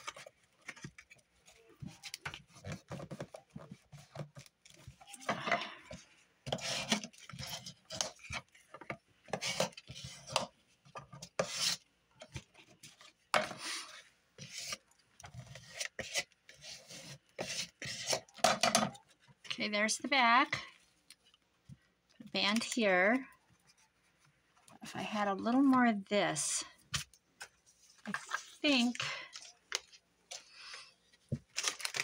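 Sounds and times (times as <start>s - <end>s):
paper rustling and scraping: 26.9s - 30.5s.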